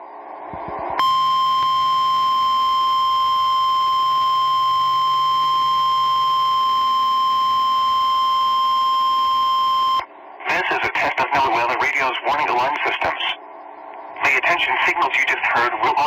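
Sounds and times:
steady high-pitched alarm tone: 1.0 - 10.0.

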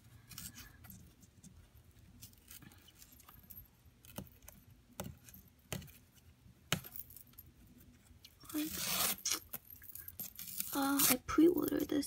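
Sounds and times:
cardboard strip tearing: 8.5 - 9.5, 10.6 - 11.2.

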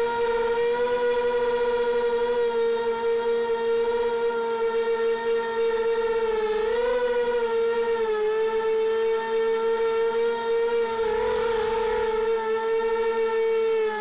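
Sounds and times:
drone propellers whining: 0.0 - 14.0.

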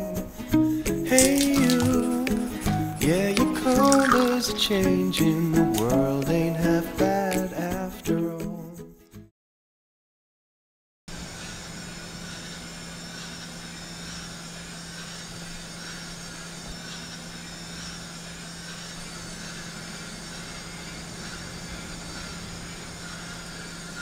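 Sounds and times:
ambient hiss: 0.0 - 7.9.

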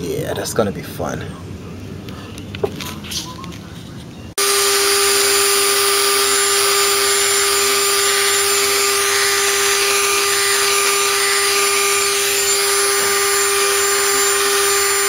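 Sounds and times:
rotary tool grinding metal pipe: 4.4 - 15.0.

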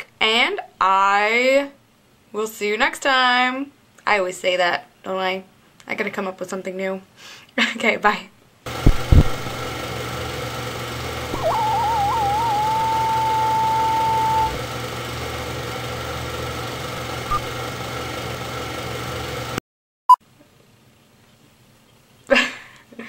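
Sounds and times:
low hum with hiss: 0.0 - 10.4, 11.1 - 17.7.

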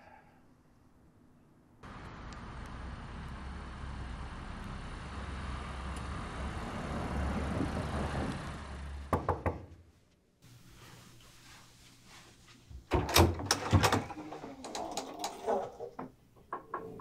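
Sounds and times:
car engine and tyres rumbling: 1.8 - 9.2.

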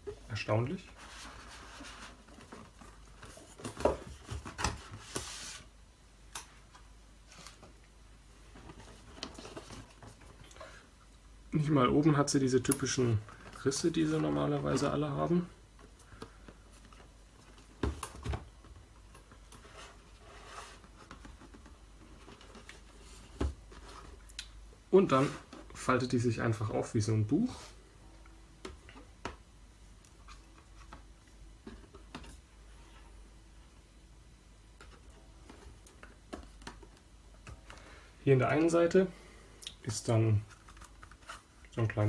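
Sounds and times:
cardboard rustling and sliding: 0.9 - 5.7, 19.6 - 24.2, 25.0 - 25.8.

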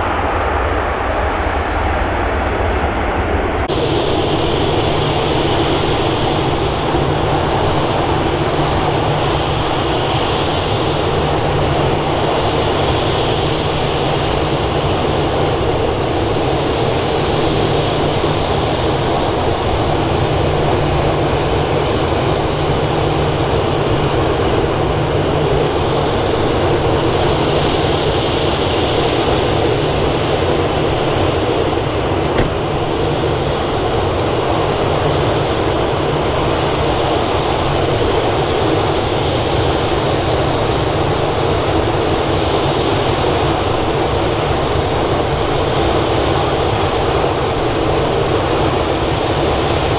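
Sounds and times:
jet engine roar: 0.0 - 49.9
faint high whine: 2.0 - 41.4.

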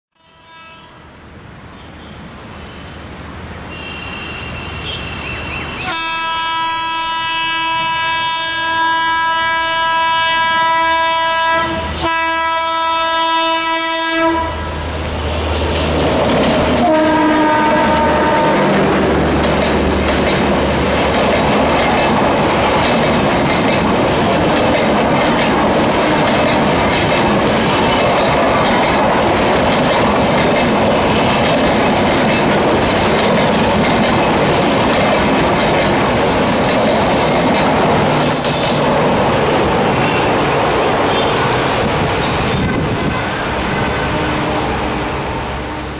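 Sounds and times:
locomotive horn blast: 0.2 - 1.0, 3.7 - 5.2, 5.8 - 14.9, 16.7 - 19.3, 26.0 - 26.7, 43.3 - 45.9
train wheels clattering over joints: 15.6 - 17.1, 18.0 - 43.4.

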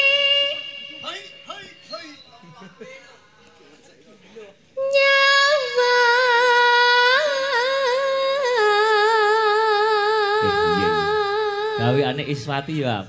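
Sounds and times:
low sound under voice: 10.4 - 11.2.

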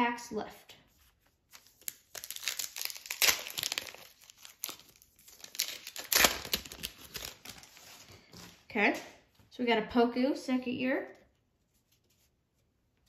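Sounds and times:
foil wrapper crinkling: 1.5 - 8.4.

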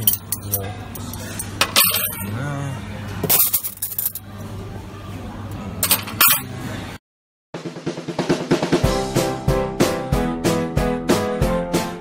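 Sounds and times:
cafeteria murmur: 0.0 - 7.0
plates and cutlery clinking: 5.8 - 6.5.

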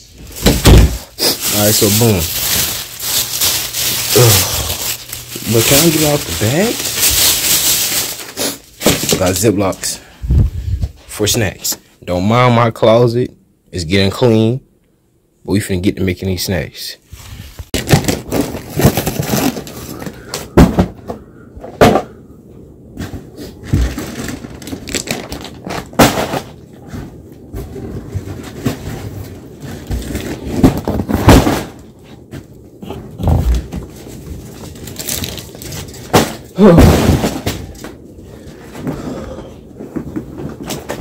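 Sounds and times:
snack boxes being handled: 17.7 - 21.2.

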